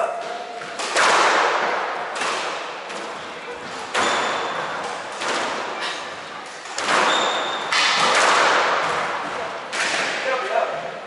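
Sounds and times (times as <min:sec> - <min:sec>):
squash ball hitting rackets and walls: 0:00.1 - 0:11.0
sneaker squeak on wooden floor: 0:03.5 - 0:05.0, 0:05.8 - 0:07.8.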